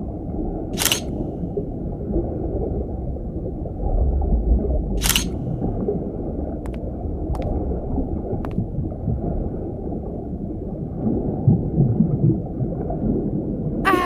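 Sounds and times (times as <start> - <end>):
underwater rumble: 0.0 - 14.0
camera shutter click: 0.8 - 1.1, 5.0 - 5.4.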